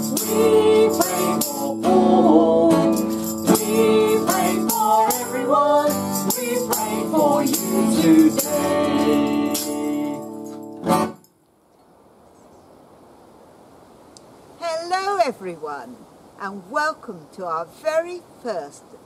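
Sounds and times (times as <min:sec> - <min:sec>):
tambourine shaking: 0:00.0 - 0:01.9, 0:02.7 - 0:11.4
man and woman singing: 0:00.0 - 0:10.3
strummed acoustic guitar: 0:00.0 - 0:11.2.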